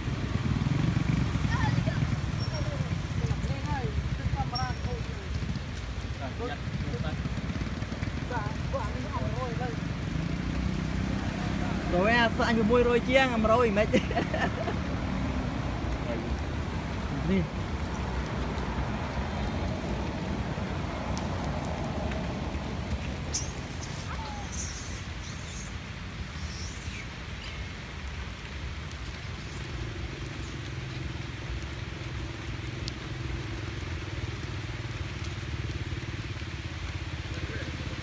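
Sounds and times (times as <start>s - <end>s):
engine hum: 0.0s - 38.0s
vehicle engines rumbling: 0.0s - 38.0s.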